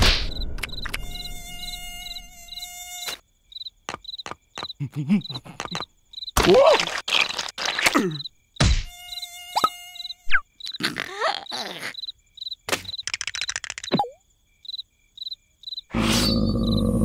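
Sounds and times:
cricket chirping: 0:00.3 - 0:17.0
mosquito buzzing whine: 0:00.8 - 0:04.2, 0:08.6 - 0:10.7
cartoon squeaks and slides: 0:06.4 - 0:08.0, 0:09.6 - 0:12.1, 0:15.9 - 0:16.5
fast clicking rattle: 0:13.0 - 0:13.9.

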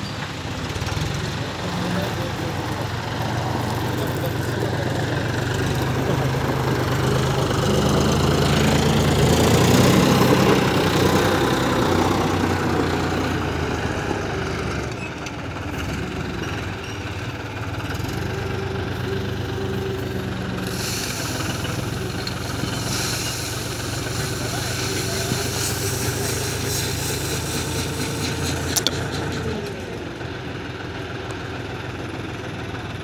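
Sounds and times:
tractor engine under load: 0:00.0 - 0:33.0
gravel pouring into steel hopper: 0:20.6 - 0:28.3.

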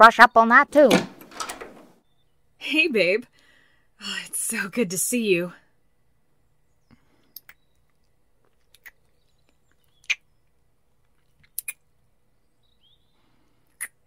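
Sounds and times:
lip smacks kissing: 0:11.4 - 0:11.8.

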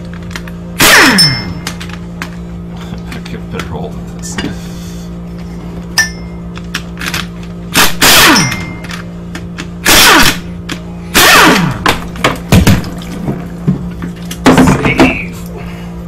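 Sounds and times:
impact wrench spinning bolts: 0:06.0 - 0:11.8.

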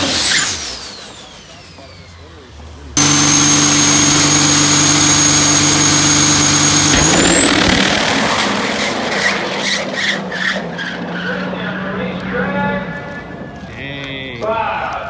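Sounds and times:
diesel truck engine revving: 0:00.0 - 0:13.1
high turbo whistle: 0:03.0 - 0:10.2.

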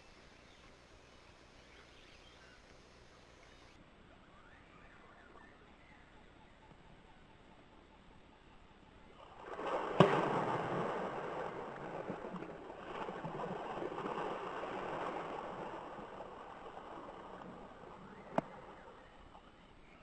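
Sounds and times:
river water splashing: 0:09.2 - 0:20.0.

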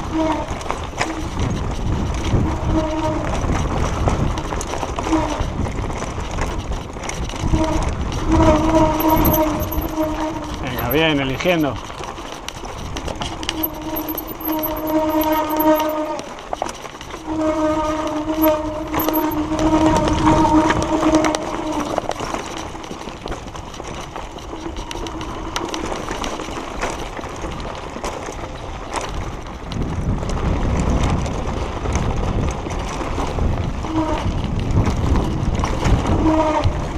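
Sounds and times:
wind on microphone: 0:00.0 - 0:11.9, 0:28.5 - 0:36.9
disc brakes howling: 0:00.0 - 0:26.3
tyres and frame rattling: 0:08.8 - 0:16.9.

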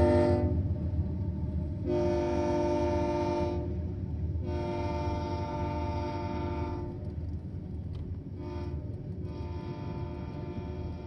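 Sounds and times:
locomotive air horn blasts: 0:00.0 - 0:00.6, 0:01.8 - 0:03.8, 0:04.4 - 0:07.0, 0:08.4 - 0:11.0
train rumbling past: 0:00.0 - 0:11.0.

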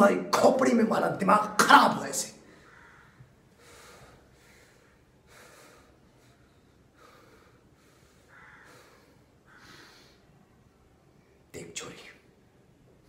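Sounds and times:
man breathing hard: 0:02.4 - 0:10.4.

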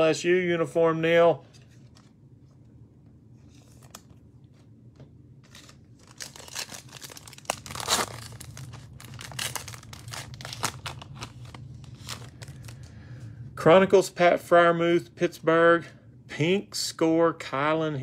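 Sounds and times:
foil wrapper tearing and crinkling: 0:05.4 - 0:12.8.

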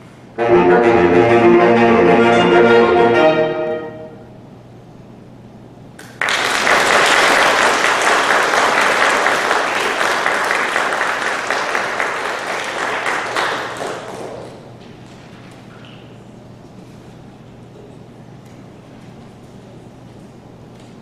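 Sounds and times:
audience applauding: 0:06.0 - 0:16.2.

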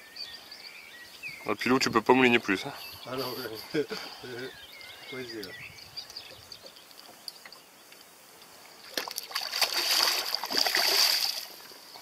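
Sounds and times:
fish splashing at water surface: 0:08.9 - 0:11.6.

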